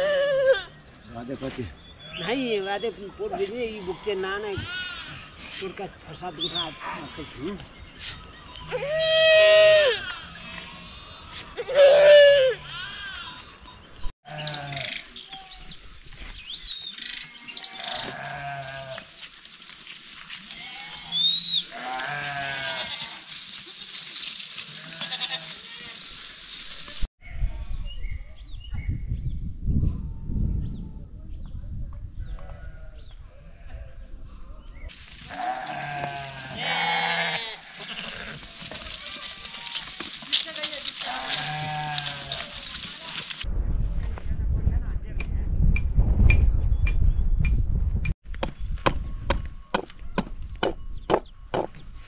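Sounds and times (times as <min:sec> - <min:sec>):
flock of livestock bleating: 0:03.3 - 0:05.6, 0:06.3 - 0:07.6, 0:08.7 - 0:13.6, 0:14.2 - 0:15.6, 0:16.9 - 0:19.2, 0:20.3 - 0:23.4, 0:24.2 - 0:26.1, 0:35.1 - 0:43.4.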